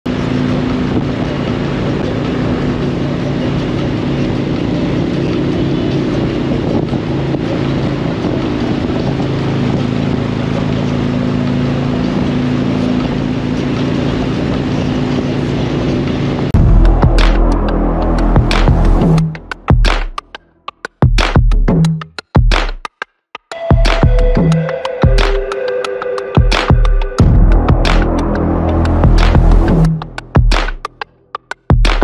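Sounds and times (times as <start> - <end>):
wind noise on microphone: 0.1 - 20.2
motorcycle engine running: 0.1 - 22.6, 23.7 - 32.0.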